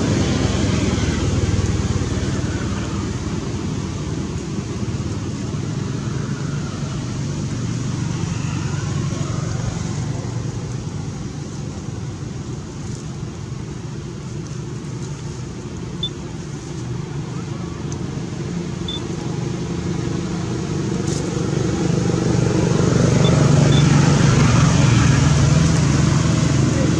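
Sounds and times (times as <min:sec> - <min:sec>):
low mechanical rumble: 0:00.0 - 0:26.9.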